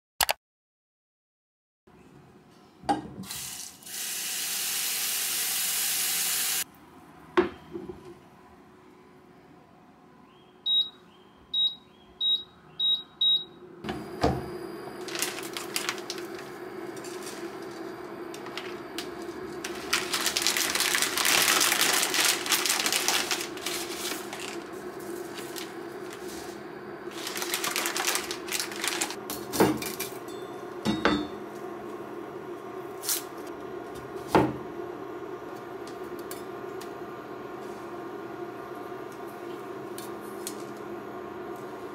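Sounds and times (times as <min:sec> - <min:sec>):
hob control beeps: 0:10.7 - 0:14.3
hob humming: 0:12.2 - 0:41.9.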